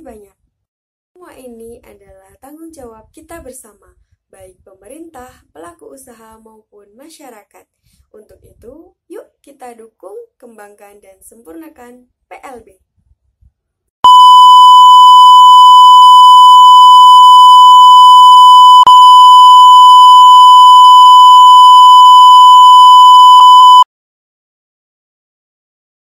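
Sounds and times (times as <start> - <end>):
harsh electronic beep: 14.1 - 23.9.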